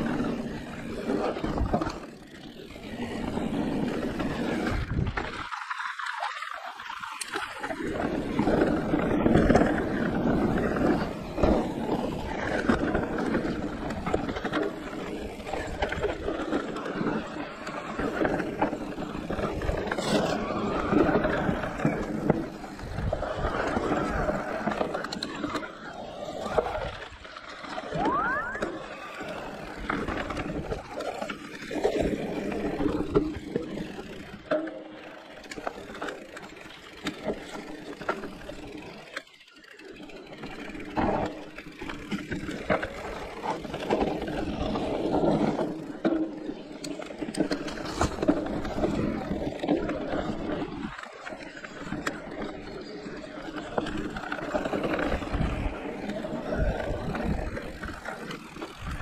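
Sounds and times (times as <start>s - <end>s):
bike tyres rolling over dirt: 0.0s - 59.0s
rising squeal: 27.9s - 29.0s
bike frame and chain rattling: 28.6s - 59.0s.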